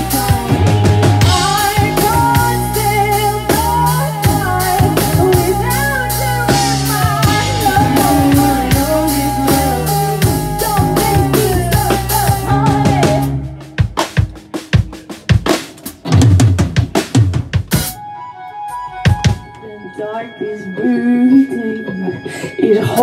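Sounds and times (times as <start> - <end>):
woman singing: 0.0 - 13.6, 19.6 - 23.0
electric guitar: 0.0 - 13.9
drum kit: 0.0 - 18.1, 18.7 - 19.6.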